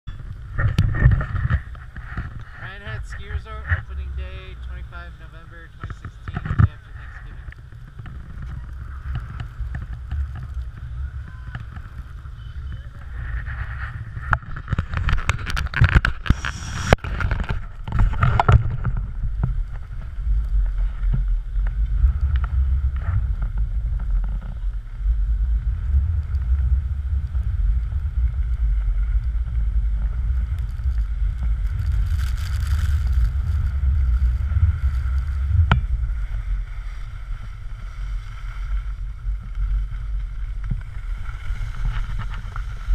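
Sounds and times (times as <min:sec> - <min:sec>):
wind buffeting microphone: 0:00.1 - 0:42.9.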